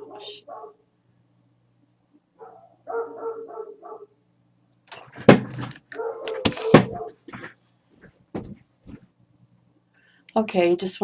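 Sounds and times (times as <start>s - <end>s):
sharp knocks: 5.0s - 5.7s, 6.4s - 7.5s
dog yipping and whining: 6.0s - 7.2s.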